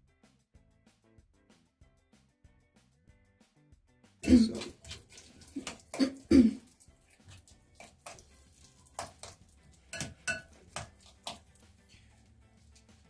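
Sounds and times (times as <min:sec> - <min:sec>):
person clearing throat: 0:04.2 - 0:04.8, 0:05.5 - 0:06.7
spoon clinking and scraping a bowl: 0:04.2 - 0:13.0.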